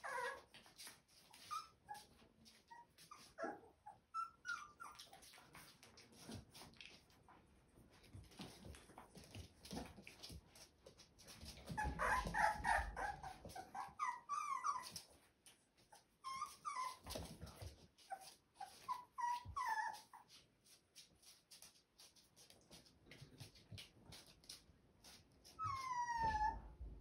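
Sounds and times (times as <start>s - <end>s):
puppies whimpering: 0.0s - 0.5s, 1.4s - 5.2s, 11.6s - 15.1s, 15.9s - 17.4s, 18.1s - 20.2s, 25.6s - 26.6s.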